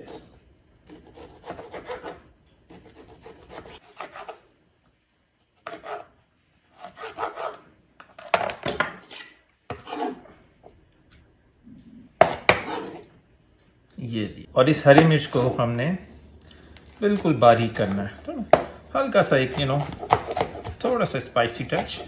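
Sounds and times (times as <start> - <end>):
knife scraping cutting board: 0.8 - 4.4, 5.4 - 7.6, 9.0 - 10.4, 12.3 - 13.1, 19.3 - 22.0
knife slicing tomato: 0.8 - 4.4, 12.2 - 13.1, 19.2 - 22.0.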